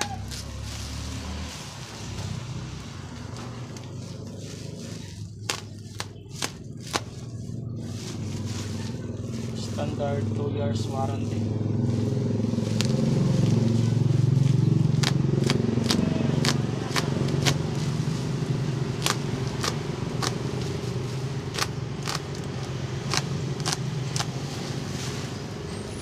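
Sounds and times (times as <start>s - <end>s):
vehicle engine humming: 0.0s - 26.0s
plastic wrap crackling: 4.9s - 7.4s, 18.9s - 24.4s.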